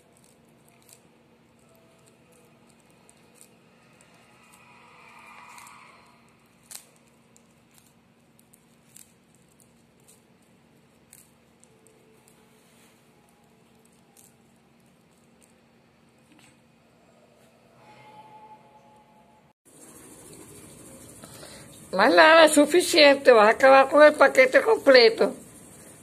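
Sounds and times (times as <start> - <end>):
tortoise crunching leaves: 0.0 - 12.4.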